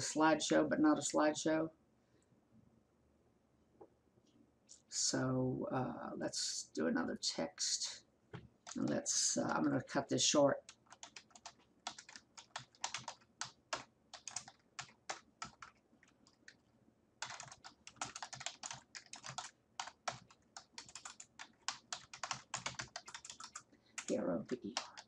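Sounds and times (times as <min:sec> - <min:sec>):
typing on computer keyboard: 0:10.7 - 0:16.6, 0:17.2 - 0:25.0.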